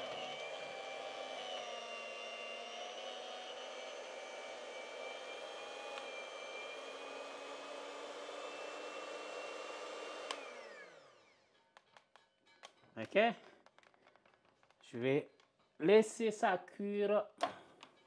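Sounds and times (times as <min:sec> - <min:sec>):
electric hand mixer running: 0:00.0 - 0:11.4.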